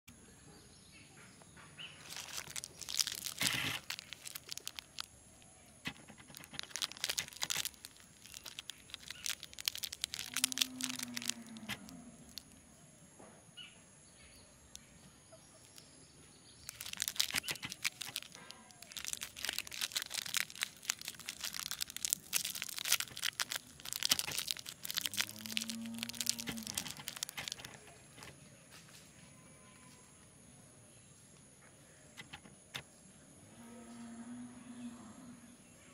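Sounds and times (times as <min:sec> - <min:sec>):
plastic wrapper crinkling and tearing: 0:01.9 - 0:12.6, 0:16.6 - 0:28.4.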